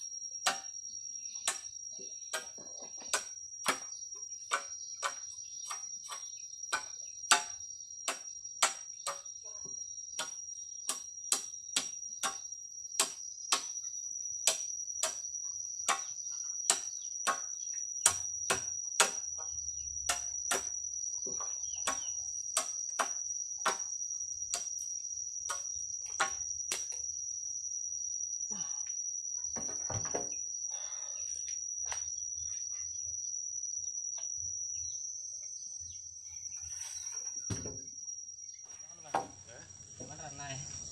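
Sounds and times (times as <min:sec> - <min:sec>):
high insect drone: 0:00.0 - 0:40.9
machete chopping bamboo: 0:00.4 - 0:00.8, 0:01.4 - 0:01.7, 0:02.3 - 0:03.9, 0:04.5 - 0:09.3, 0:10.2 - 0:12.4, 0:13.0 - 0:13.8, 0:14.4 - 0:15.2, 0:15.8 - 0:19.3, 0:20.1 - 0:20.8, 0:21.8 - 0:23.9, 0:24.5 - 0:24.8, 0:25.5 - 0:27.0.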